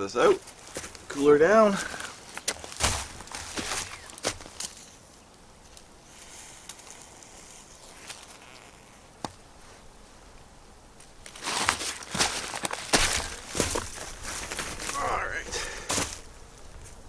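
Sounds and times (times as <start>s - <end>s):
footsteps in dry leaves: 0.3s - 5.0s, 11.3s - 17.0s.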